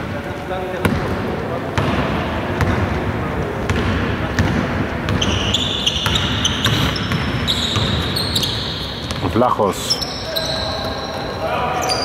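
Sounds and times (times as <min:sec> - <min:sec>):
sneakers squeaking on floor: 0:03.7 - 0:12.0.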